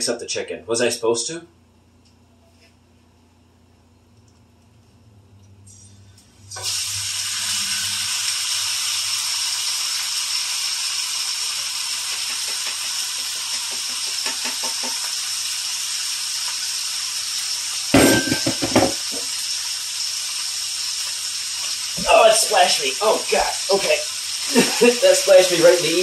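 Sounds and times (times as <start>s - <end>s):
chicken sizzling in hot oil: 6.5s - 26.0s.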